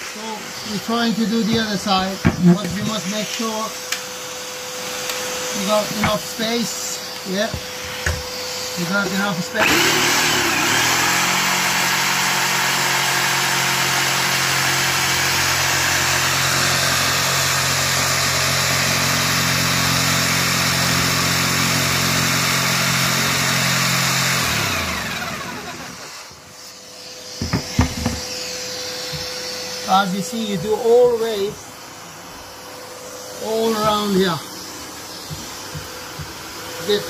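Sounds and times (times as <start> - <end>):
jigsaw cutting worktop: 0.0 - 31.6, 32.4 - 37.0
vacuum cleaner running: 0.0 - 37.0
knocks: 27.4 - 28.3.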